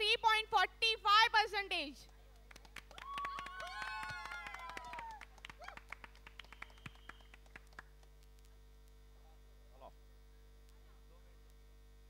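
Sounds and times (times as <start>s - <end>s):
mains hum: 0.0s - 12.0s
audience applause: 2.4s - 8.0s.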